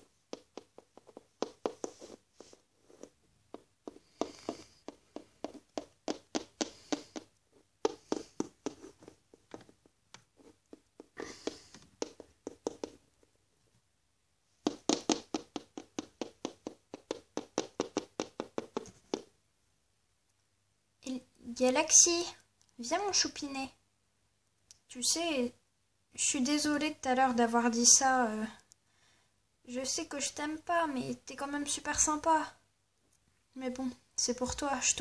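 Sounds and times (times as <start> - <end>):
plastic toy tapping on hard surface: 10.7 - 13.0, 14.6 - 19.3.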